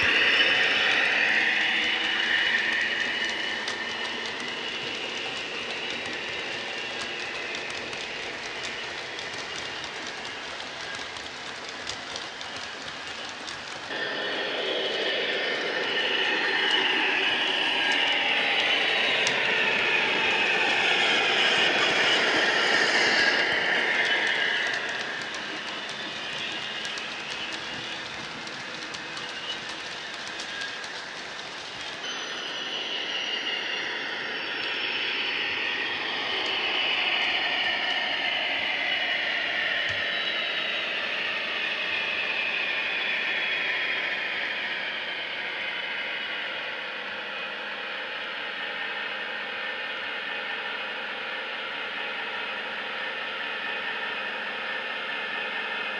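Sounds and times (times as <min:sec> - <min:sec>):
model train wheels clicking: 0:00.0 - 0:14.0, 0:16.3 - 0:32.1.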